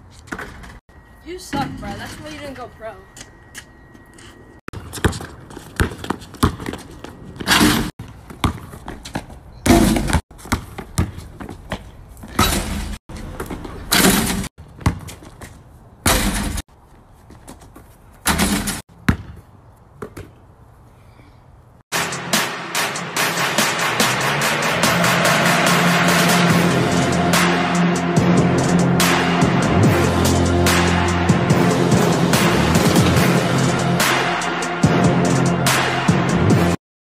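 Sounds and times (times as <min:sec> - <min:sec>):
basketball slamming and thudding: 0:04.8 - 0:06.8, 0:07.4 - 0:08.9, 0:09.6 - 0:11.2, 0:12.3 - 0:15.2, 0:16.0 - 0:16.6, 0:18.2 - 0:19.4.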